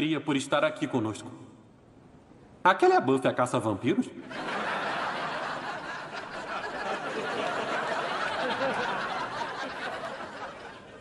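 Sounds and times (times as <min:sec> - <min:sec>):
studio audience laughing: 0:04.3 - 0:11.0.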